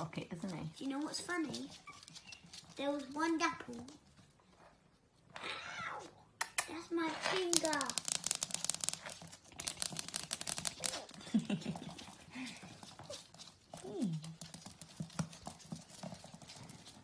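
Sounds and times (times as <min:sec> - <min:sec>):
claws clicking on wooden floor: 0:06.4 - 0:17.0.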